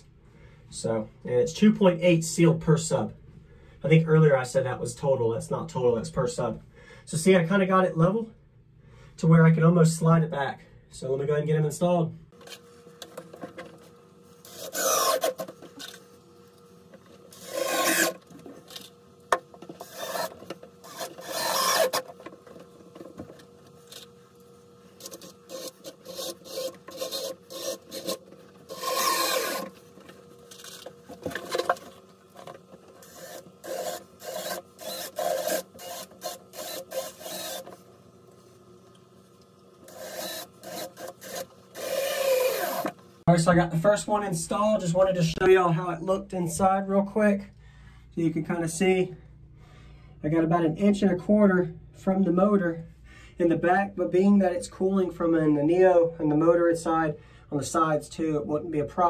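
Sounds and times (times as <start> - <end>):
cordless drill driving screws: 14.4 - 16.0, 17.3 - 18.9, 19.8 - 22.4, 25.0 - 29.9, 33.0 - 37.8, 39.8 - 43.0.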